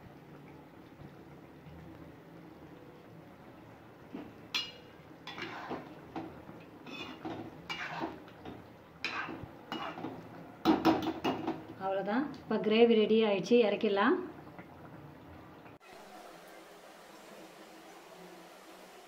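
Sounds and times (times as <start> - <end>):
metal ladle scraping a pot: 4.6 - 6.0, 6.8 - 8.4, 9.0 - 10.2.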